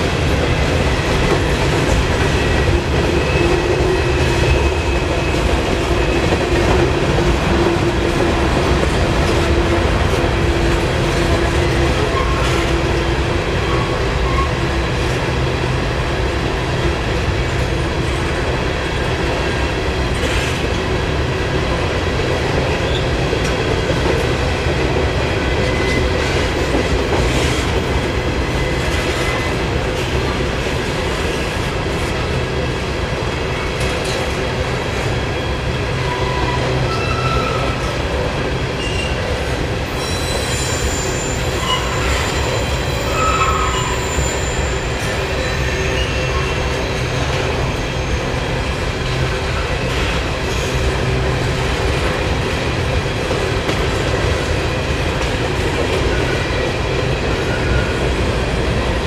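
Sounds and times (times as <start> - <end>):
train wheels rumbling on rails: 0.0 - 59.0
high wheel squeals: 39.9 - 48.4.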